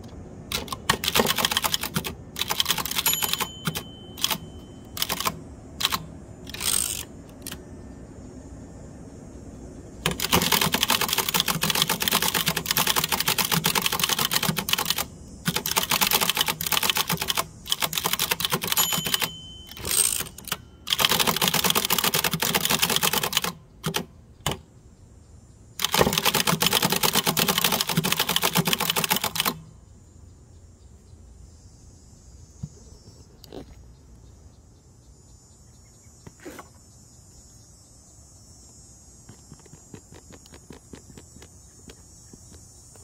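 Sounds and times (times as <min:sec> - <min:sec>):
manual typewriter keystroke clacks: 0:00.5 - 0:07.6, 0:10.0 - 0:24.6, 0:25.8 - 0:29.7.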